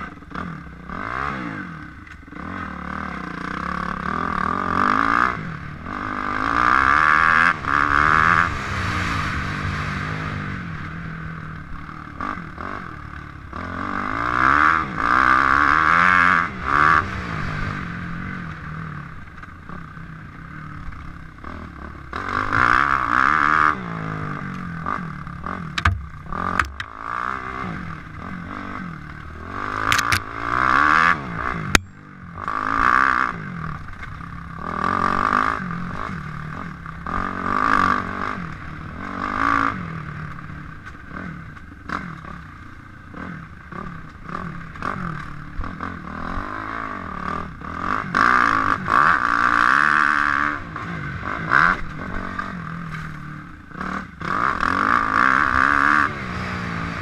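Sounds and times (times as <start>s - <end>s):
motorcycle engine revving: 0.0s - 57.0s
knocks and clatters from bike: 25.7s - 27.0s, 29.9s - 30.3s.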